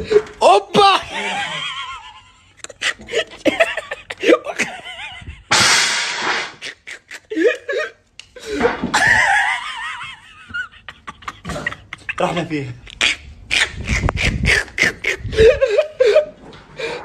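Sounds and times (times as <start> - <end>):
men laughing and shouting: 0.0 - 5.5, 6.7 - 12.7, 13.9 - 16.4
harsh burst of noise: 5.5 - 6.6.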